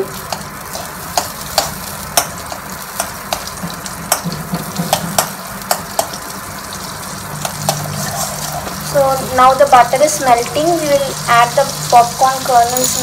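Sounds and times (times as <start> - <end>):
butter sizzling in hot oil: 0.0 - 13.0
spoon scraping a steel pan: 7.4 - 8.8.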